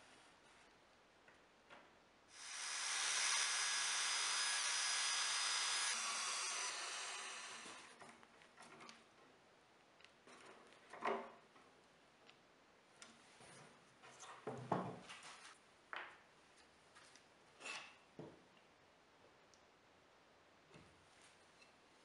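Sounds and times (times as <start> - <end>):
screwdriver turning screw: 2.5 - 7.9.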